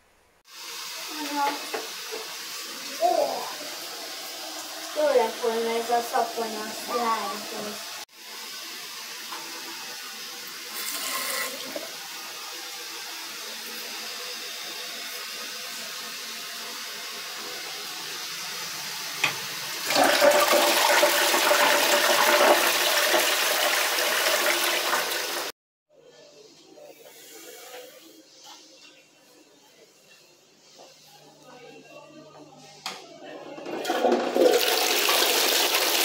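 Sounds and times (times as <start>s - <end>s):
toilet flush click: 19.2s - 25.5s
water rushing through toilet bowl: 19.2s - 25.5s, 33.6s - 36.0s.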